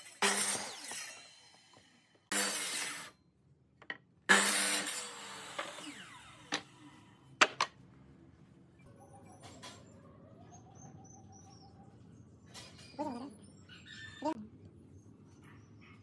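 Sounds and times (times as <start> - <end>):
miter saw cutting wood: 0.2 - 1.7, 2.3 - 3.1, 4.3 - 6.8.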